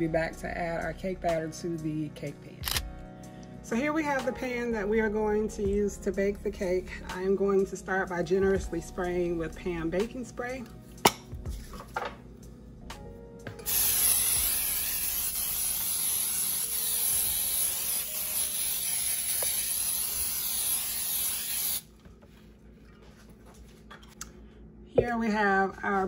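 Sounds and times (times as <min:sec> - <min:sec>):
aerosol spray hiss: 0:13.6 - 0:21.8.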